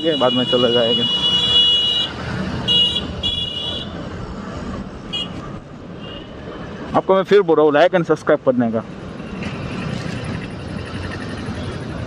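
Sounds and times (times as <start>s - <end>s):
vehicle horn honking: 0.0s - 3.9s
road traffic: 0.0s - 12.0s.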